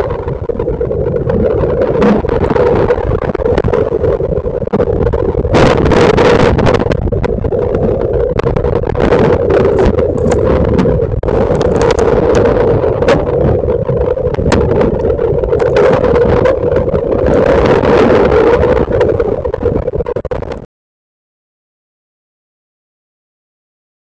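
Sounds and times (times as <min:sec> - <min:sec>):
steady hum: 0:06.9 - 0:20.2
wind and water rushing: 0:07.8 - 0:19.6
knocks and clicks: 0:14.3 - 0:16.6.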